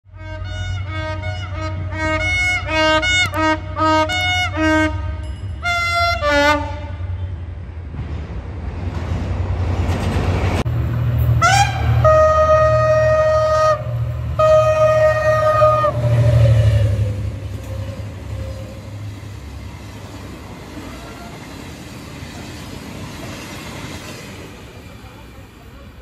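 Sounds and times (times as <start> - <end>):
locomotive air horn: 0.1 - 7.5, 11.3 - 19.1
locomotive engine rumble: 0.1 - 26.0
passing train rushing: 0.1 - 26.0.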